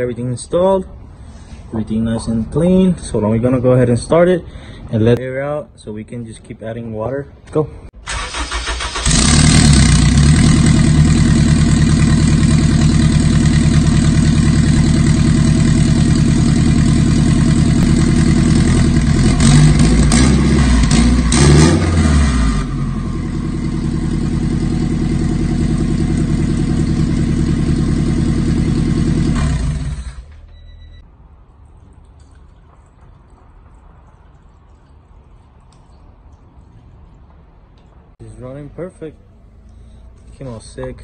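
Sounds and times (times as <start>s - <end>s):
car engine idling and revving: 8.6s - 30.4s, 38.6s - 41.0s.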